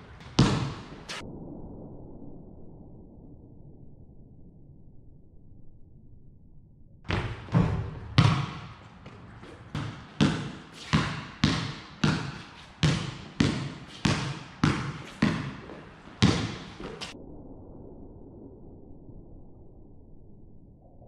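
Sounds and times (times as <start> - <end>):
basketball bouncing on concrete: 0.1 - 1.1, 7.1 - 17.1.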